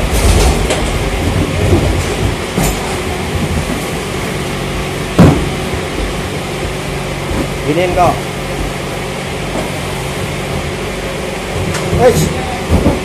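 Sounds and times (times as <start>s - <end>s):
forklift engine hum: 0.0s - 13.0s.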